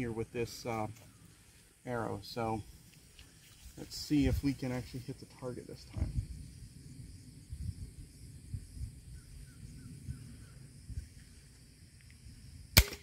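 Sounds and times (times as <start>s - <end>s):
faint insect hiss: 0.0s - 13.0s
wind rumble on microphone: 3.6s - 12.8s.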